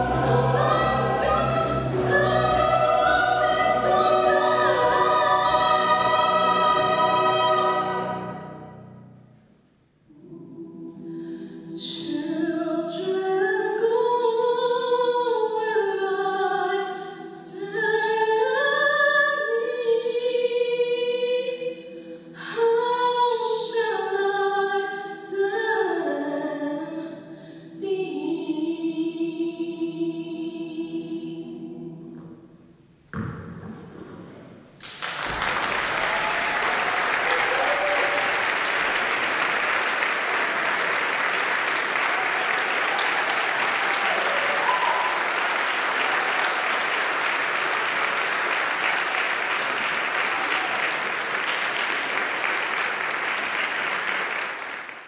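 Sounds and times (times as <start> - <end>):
choir singing chord: 0.0 - 9.2
audience applauding: 34.8 - 55.0.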